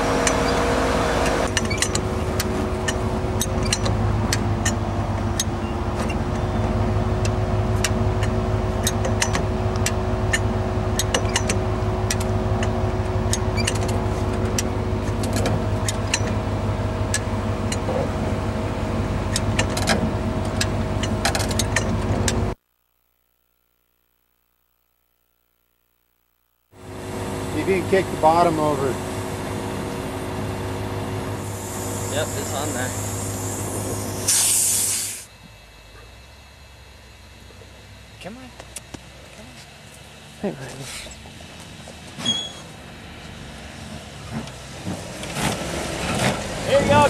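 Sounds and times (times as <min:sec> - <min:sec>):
off-road vehicle engine running: 0:00.0 - 0:22.6, 0:26.8 - 0:47.0
sharp clicks and knocks: 0:01.2 - 0:06.4, 0:07.2 - 0:16.4, 0:19.3 - 0:22.5.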